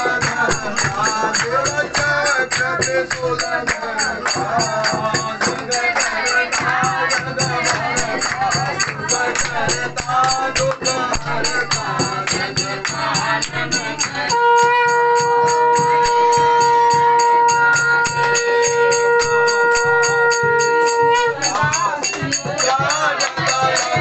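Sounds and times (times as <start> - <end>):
hand-clapping: 0.0 - 14.3, 21.5 - 24.0
group singing a hymn: 0.0 - 14.4, 21.4 - 24.0
conch shell held note: 14.3 - 21.5.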